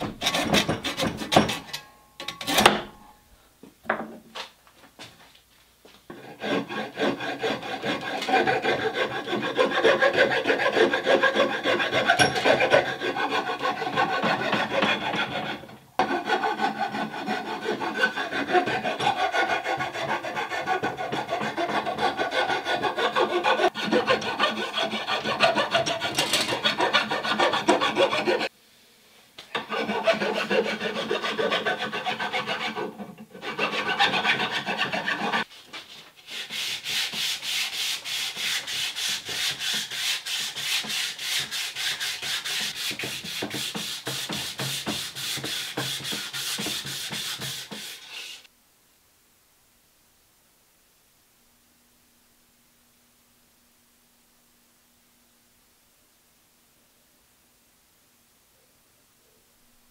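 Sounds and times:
rasp rubbing on wood: 0:00.1 - 0:01.7, 0:06.1 - 0:28.5, 0:29.6 - 0:35.5, 0:36.2 - 0:48.5.

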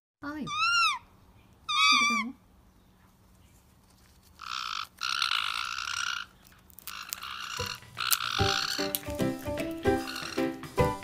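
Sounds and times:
parrots harsh buzzing calls: 0:00.3 - 0:02.4, 0:04.4 - 0:10.7.

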